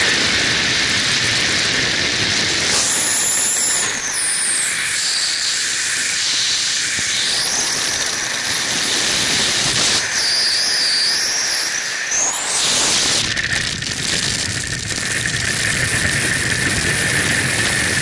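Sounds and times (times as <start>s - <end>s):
wind buffeting microphone: 0.0s - 5.0s, 12.6s - 18.0s.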